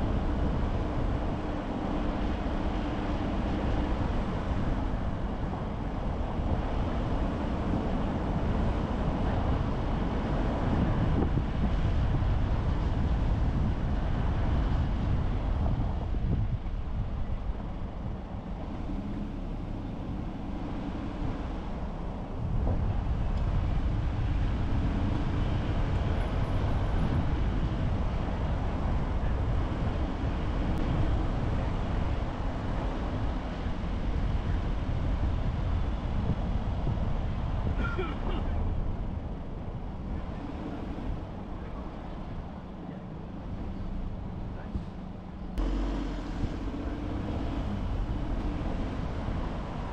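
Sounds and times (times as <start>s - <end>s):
car road and engine noise: 0.0s - 49.9s.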